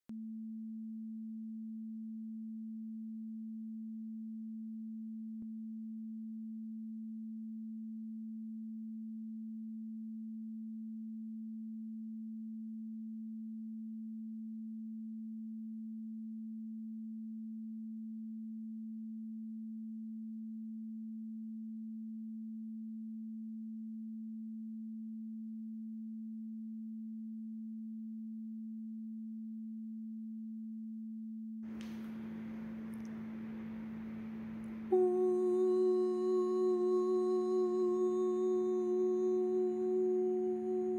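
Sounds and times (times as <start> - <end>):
steady pure low tone: 22.1 - 40.9
faint click: 31.7 - 34.8.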